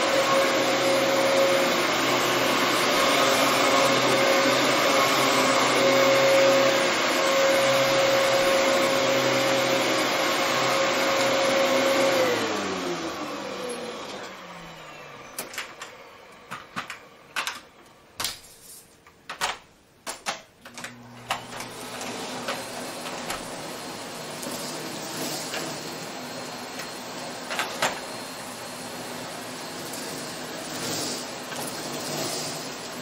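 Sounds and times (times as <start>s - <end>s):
vacuum cleaner running: 0.0s - 17.8s, 20.7s - 33.0s
sharp clicks and knocks: 19.0s - 21.5s.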